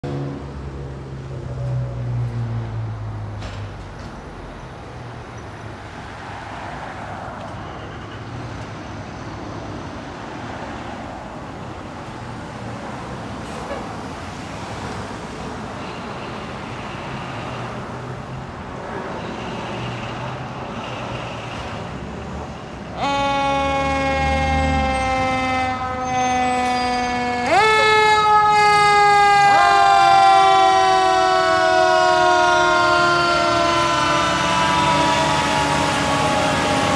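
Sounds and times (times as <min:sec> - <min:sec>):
fire engine rumbling: 0:00.0 - 0:36.9
street traffic passing: 0:00.0 - 0:36.9
wailing siren: 0:23.0 - 0:36.9.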